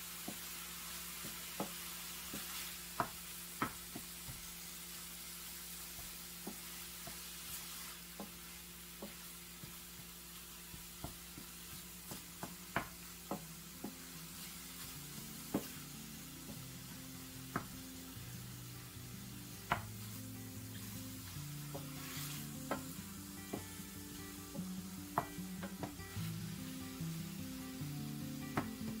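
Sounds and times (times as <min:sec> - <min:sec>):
meat sizzling in a pan: 0:00.0 - 0:29.0
wooden spatula tapping pan: 0:01.2 - 0:04.5, 0:05.9 - 0:07.4, 0:08.1 - 0:14.1, 0:15.5 - 0:15.8, 0:19.6 - 0:20.1, 0:21.7 - 0:23.8, 0:24.5 - 0:26.1.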